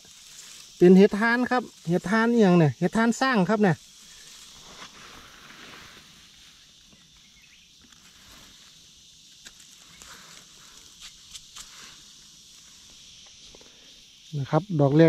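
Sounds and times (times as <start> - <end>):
soft rustles or steps: 0.0 - 0.8, 3.8 - 13.8
high insect drone: 0.0 - 15.0.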